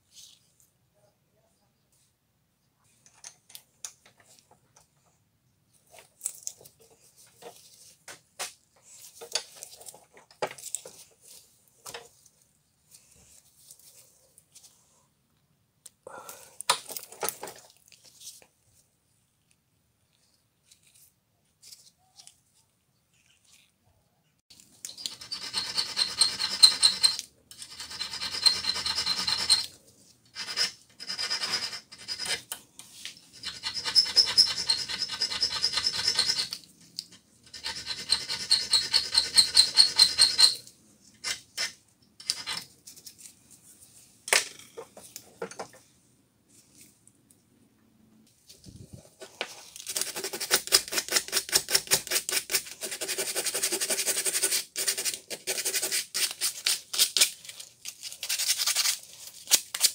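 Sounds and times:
metal file rasping on steel: 25.0s - 29.7s, 30.3s - 32.5s, 33.3s - 36.6s, 37.5s - 40.6s.

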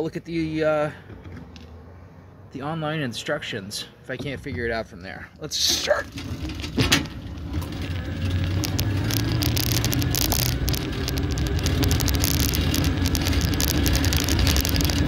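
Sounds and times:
bicycle rolling noise: 5.9s - 15.0s
bicycle rattles and clicks: 6.0s - 15.0s.

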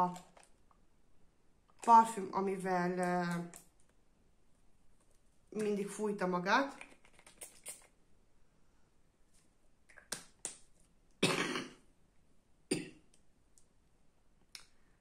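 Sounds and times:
woman coughing: 11.2s - 11.8s, 12.7s - 13.0s.

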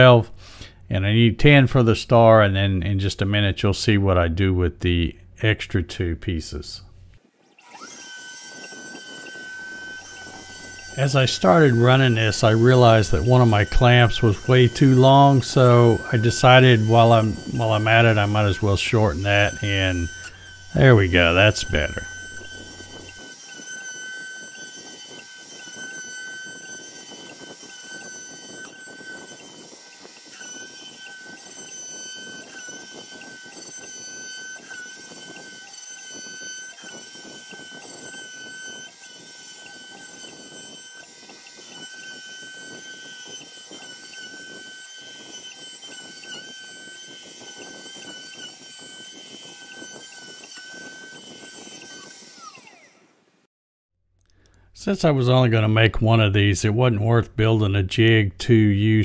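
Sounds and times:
router spindle high whine: 6.9s - 53.2s
router bit cutting wood: 7.1s - 53.2s.

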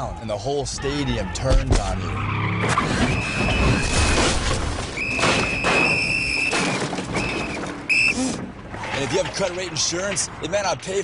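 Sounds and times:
car tyres screeching: 0.0s - 10.8s
car smashing through wooden fence: 2.6s - 7.9s
splintering wood and metal scraping: 2.6s - 10.3s.

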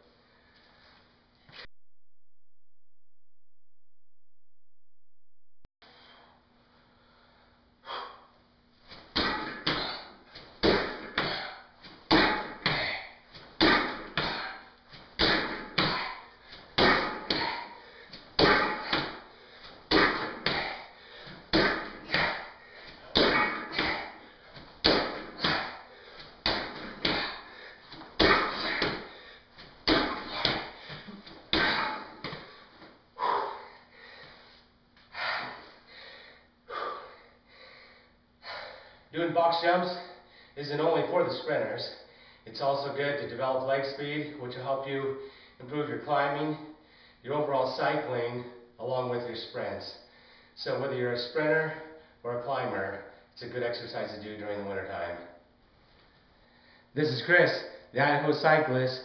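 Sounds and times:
feet thudding on bench and floor: 18.3s - 32.6s.

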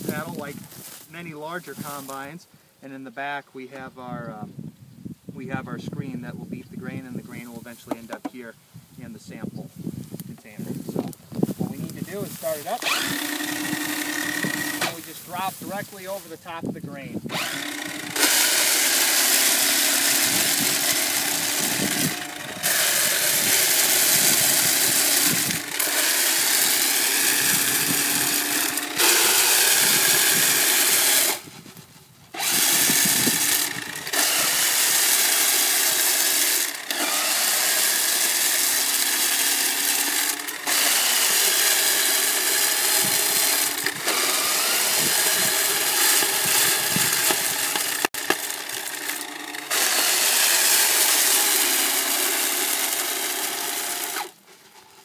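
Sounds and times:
hand combine motor whirring: 11.8s - 15.8s, 17.3s - 31.6s, 32.3s - 55.0s.

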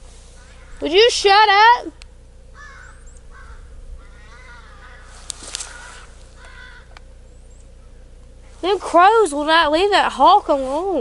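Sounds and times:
crows cawing: 0.3s - 1.0s, 2.5s - 8.2s.

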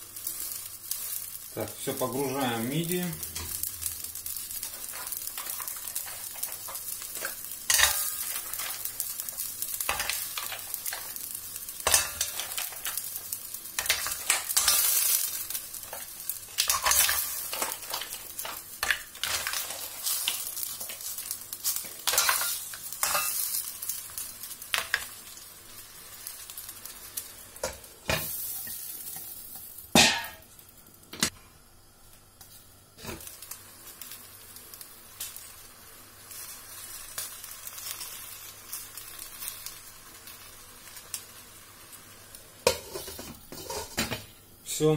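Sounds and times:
hot liquid sizzling: 0.0s - 44.9s
shells clattering in a pan: 3.3s - 25.2s.

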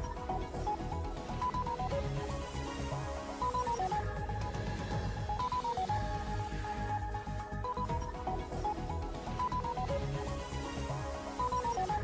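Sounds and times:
theme music with pulsing bass: 0.0s - 12.0s.

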